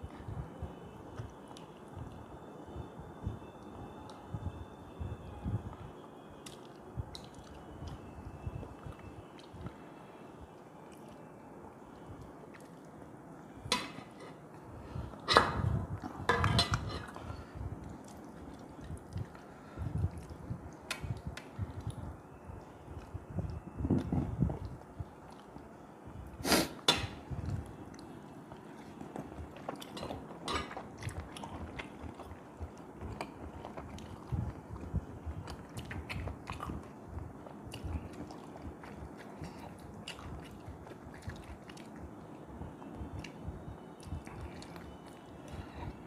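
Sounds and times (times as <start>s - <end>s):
person chewing soft food: 0.8s - 2.4s, 6.4s - 13.2s, 15.9s - 26.7s, 27.3s - 46.0s.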